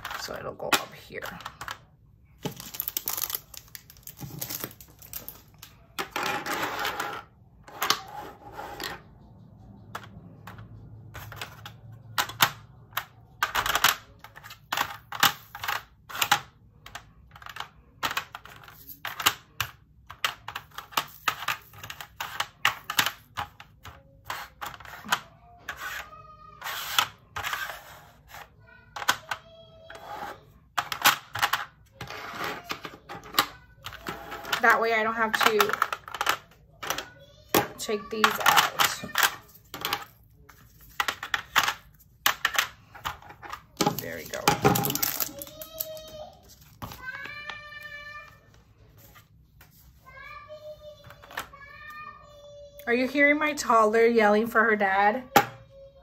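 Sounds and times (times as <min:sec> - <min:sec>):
plastic containers clattering: 0:00.0 - 0:07.3, 0:30.8 - 0:45.9.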